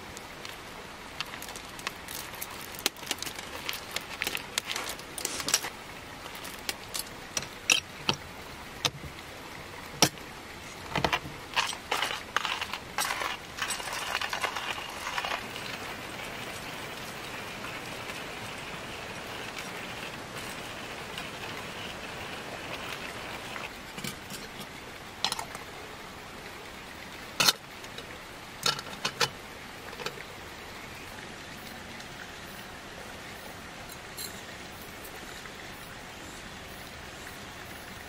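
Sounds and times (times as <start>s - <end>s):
grinder crunching beans: 11.5s - 15.7s
coffee beans rattling into grinder: 11.6s - 15.4s.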